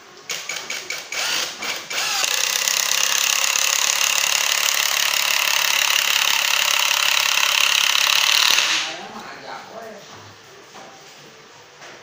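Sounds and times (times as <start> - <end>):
impact driver boring into wood: 0.8 - 8.9.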